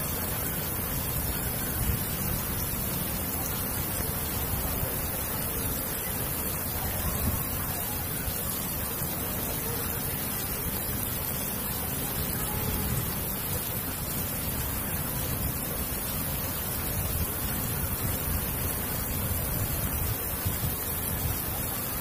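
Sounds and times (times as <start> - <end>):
rain on concrete roof: 0.0 - 22.0.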